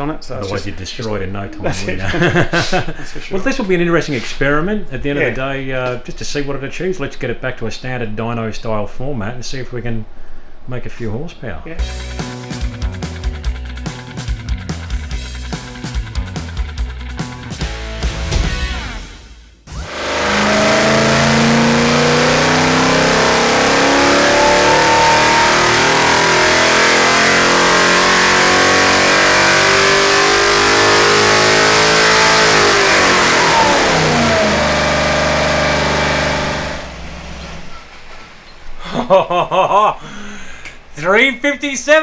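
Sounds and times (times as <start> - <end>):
engine revving at full throttle: 19.7 - 37.6.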